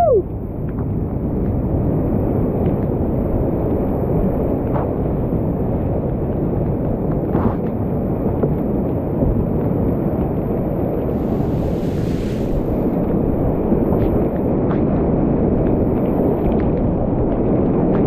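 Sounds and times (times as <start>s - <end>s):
rapids rushing: 10.6s - 14.5s.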